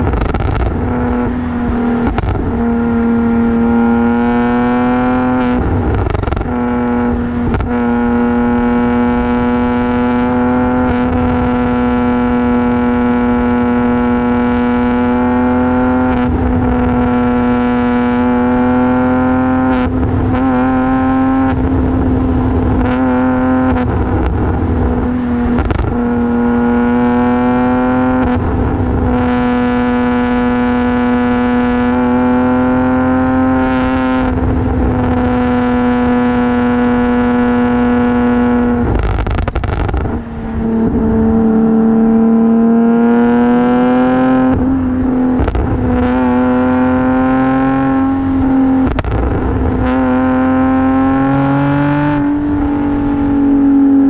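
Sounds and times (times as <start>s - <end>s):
car engine droning: 0.0s - 54.0s.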